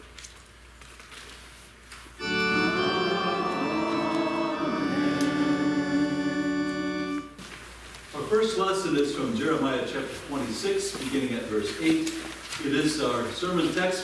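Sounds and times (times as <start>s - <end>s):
church organ chords: 2.2s - 7.4s.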